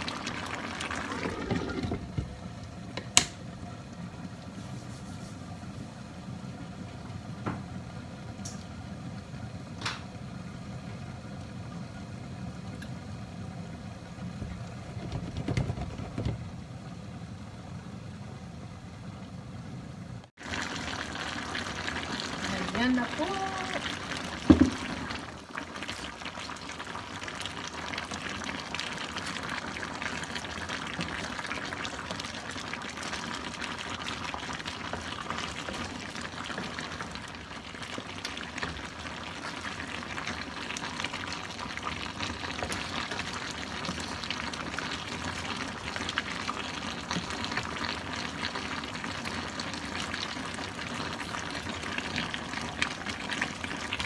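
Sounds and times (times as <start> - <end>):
broth bubbling in a wok: 0.0 - 54.0.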